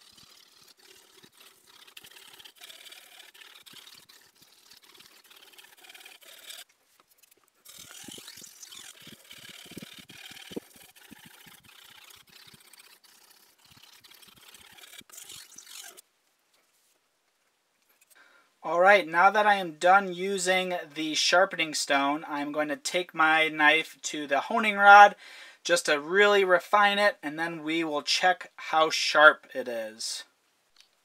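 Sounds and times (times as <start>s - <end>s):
knife scraping on whetstone: 0.0s - 16.0s.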